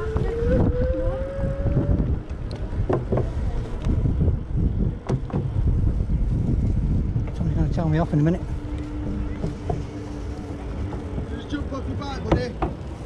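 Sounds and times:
bicycle rumble: 0:00.0 - 0:13.0
wind buffeting microphone: 0:00.0 - 0:13.0
sharp knocks: 0:12.2 - 0:12.8.

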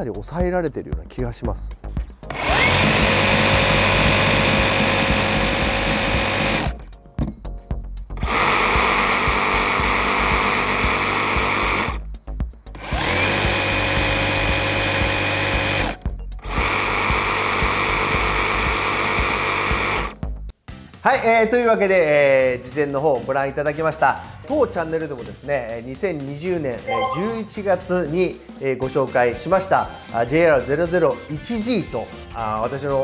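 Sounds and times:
reciprocating saw motor whine: 0:02.3 - 0:06.7.

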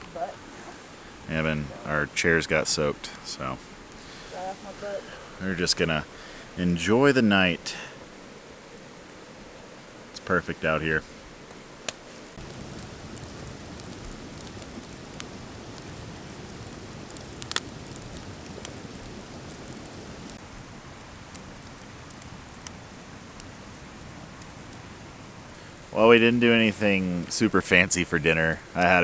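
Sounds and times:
campfire crackling and popping: 0:00.0 - 0:10.8, 0:11.4 - 0:29.0.

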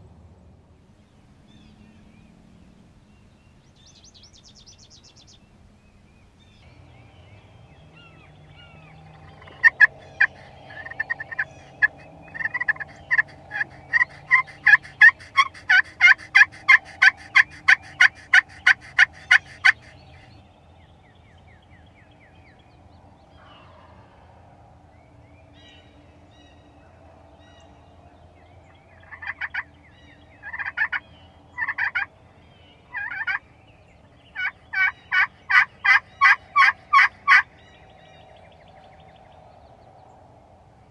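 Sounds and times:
turkey call yelps: 0:09.4 - 0:20.2, 0:30.4 - 0:31.0, 0:32.9 - 0:33.4, 0:34.4 - 0:37.5.

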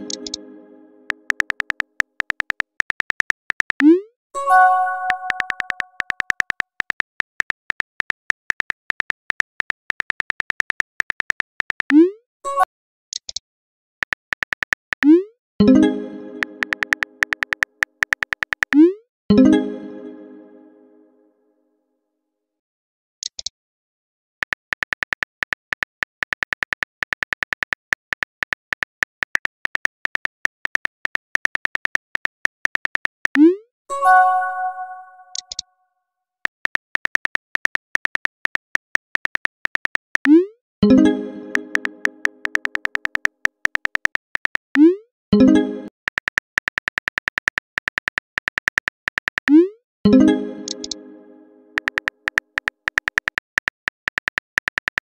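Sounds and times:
keyboard typing clicks: 0:00.0 - 0:00.4, 0:01.1 - 0:04.0, 0:04.8 - 0:12.0, 0:14.0 - 0:15.2, 0:16.4 - 0:18.9, 0:24.4 - 0:33.6, 0:34.7 - 0:35.6, 0:36.4 - 0:51.0, 0:51.8 - 0:55.0
bell-like message chime: 0:33.9 - 0:35.4.

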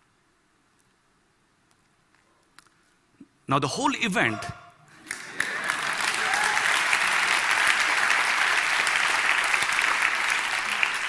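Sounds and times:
large audience applauding: 0:05.0 - 0:11.0.

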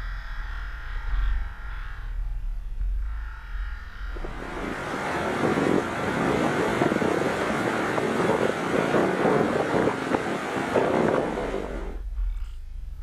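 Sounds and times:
wind: 0:00.0 - 0:13.0
ocean surf: 0:04.2 - 0:12.0.

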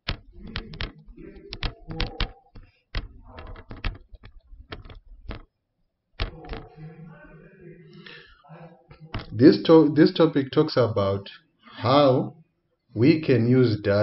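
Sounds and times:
stylus tapping on tablet screen: 0:00.0 - 0:05.5.

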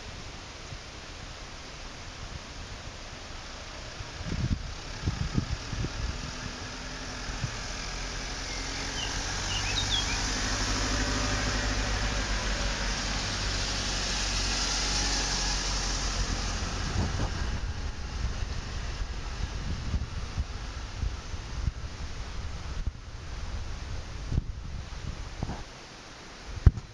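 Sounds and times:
vehicle engine hum: 0:00.0 - 0:26.9
wind buffeting microphone: 0:03.9 - 0:25.7
bird chirps: 0:08.4 - 0:10.4.

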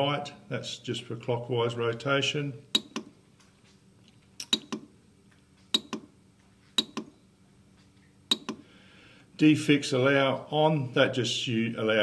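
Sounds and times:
keypad button double clicks: 0:04.5 - 0:04.9, 0:05.8 - 0:06.1, 0:06.8 - 0:07.1, 0:08.3 - 0:08.6.

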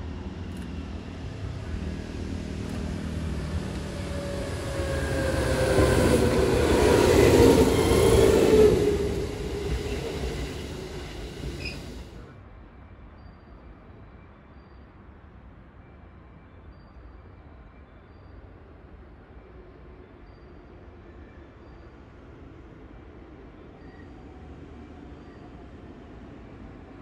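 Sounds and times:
electric train passing: 0:00.0 - 0:12.4
station background: 0:02.1 - 0:12.3
falling whine: 0:02.8 - 0:12.2.

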